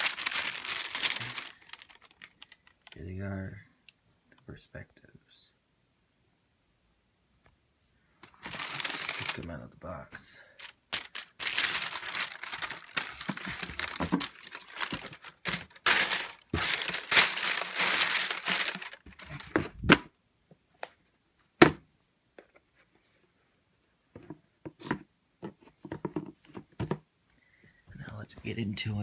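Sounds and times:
tissue paper crinkling: 0.0s - 2.9s, 8.3s - 9.5s, 10.6s - 19.6s
faint handling sounds: 0.0s - 4.5s, 8.1s - 19.8s.

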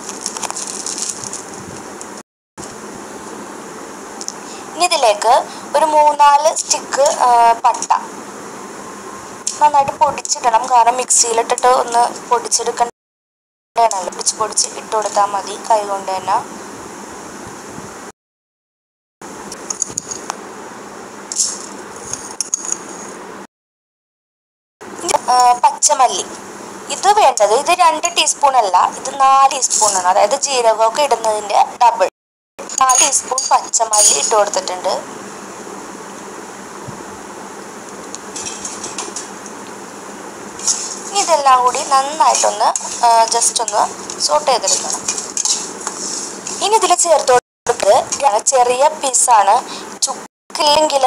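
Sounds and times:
seeds rattling in metal pan: 0.0s - 1.6s, 21.3s - 21.7s, 29.7s - 30.1s, 38.3s - 39.4s, 40.6s - 46.9s
steady background hiss: 0.0s - 12.9s, 13.8s - 18.1s, 19.3s - 23.4s, 24.8s - 51.0s.

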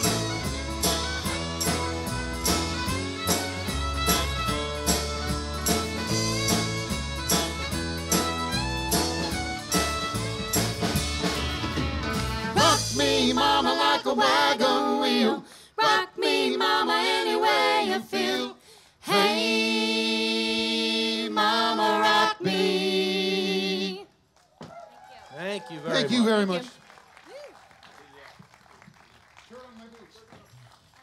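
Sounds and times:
live country band playing: 0.0s - 14.3s
lone melody line: 0.0s - 14.7s.

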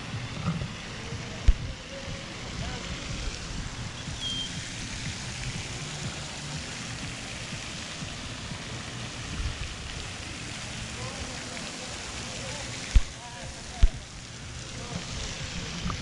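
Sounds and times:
running water rushing: 0.0s - 16.0s
short high chirp: 4.0s - 4.6s.

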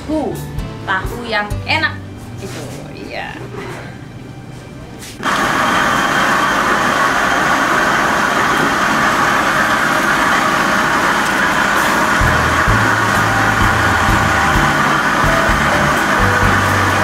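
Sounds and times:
factory machinery rushing: 5.2s - 17.0s.

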